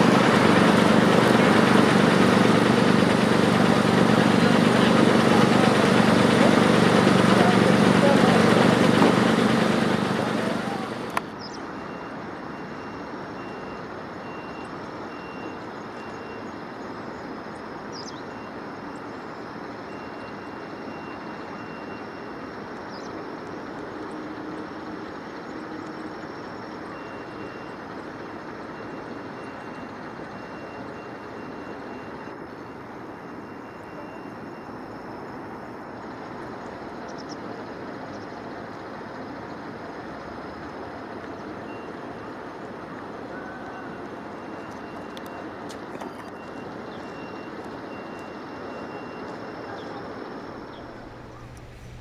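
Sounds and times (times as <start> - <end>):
heavy machinery and engines: 0.0 - 52.0
faint high beeping: 26.7 - 37.3, 43.2 - 52.0.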